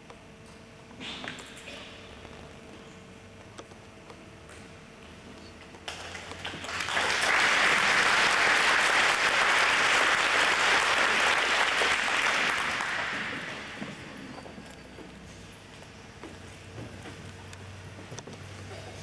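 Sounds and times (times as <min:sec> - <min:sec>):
audience applauding: 0:05.9 - 0:13.9.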